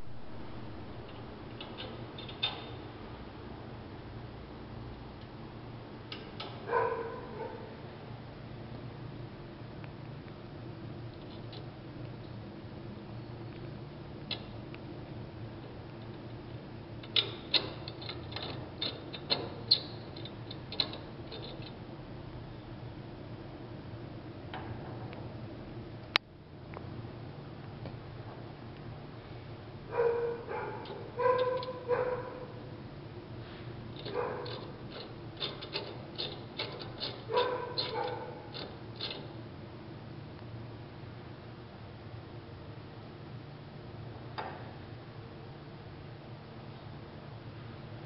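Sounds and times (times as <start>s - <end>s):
low steady hum: 0.0s - 48.0s
sharp metal clicks and taps: 6.1s - 6.6s, 34.0s - 39.2s
metal clinking and scraping: 33.9s - 39.3s.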